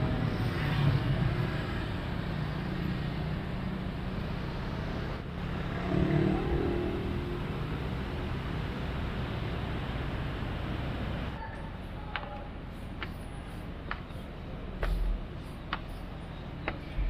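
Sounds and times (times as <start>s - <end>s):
motorbikes and cars passing: 0.0s - 11.4s.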